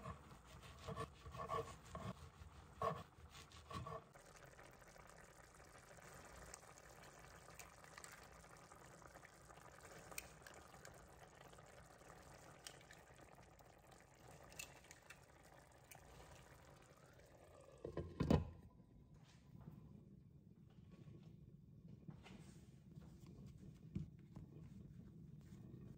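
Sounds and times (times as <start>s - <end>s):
sauce bubbling in a pan: 0.0s - 18.2s.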